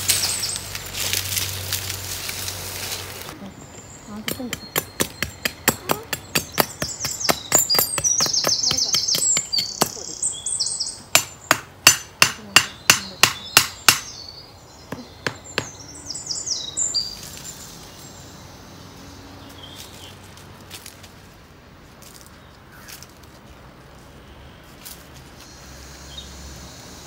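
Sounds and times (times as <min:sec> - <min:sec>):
bird chirping high calls: 0:00.0 - 0:00.8, 0:03.3 - 0:11.7, 0:12.4 - 0:20.2
knife knocking wooden stake: 0:04.3 - 0:10.1, 0:11.2 - 0:14.1, 0:14.9 - 0:15.8.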